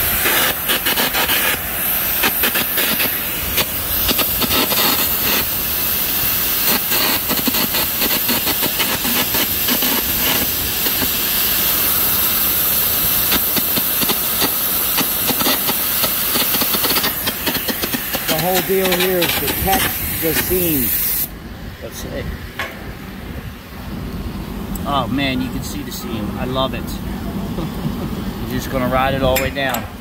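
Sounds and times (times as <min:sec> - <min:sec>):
arc welding crackle and hiss: 0:00.0 - 0:21.3.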